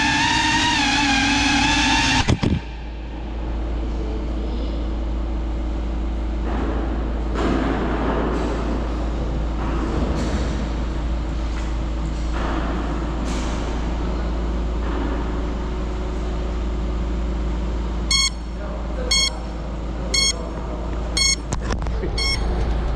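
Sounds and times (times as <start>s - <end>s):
drone propellers whirring: 0.0s - 3.5s, 21.2s - 22.9s
short electronic beep: 18.1s - 19.5s, 20.1s - 20.5s, 21.1s - 21.5s, 22.1s - 22.6s.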